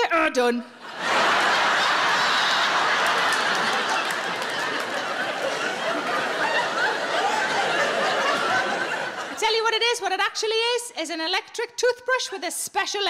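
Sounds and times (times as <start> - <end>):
large audience laughing: 0.8 - 9.6.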